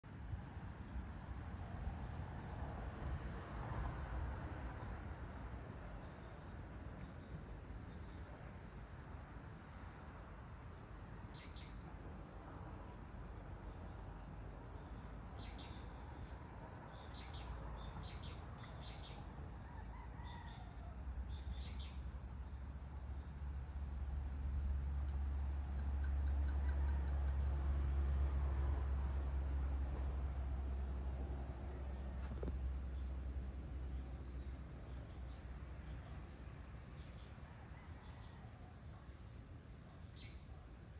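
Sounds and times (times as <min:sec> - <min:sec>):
high insect drone: 0:00.1 - 0:40.9
faint rooster crowing: 0:18.8 - 0:21.8, 0:25.8 - 0:27.7, 0:37.4 - 0:39.3.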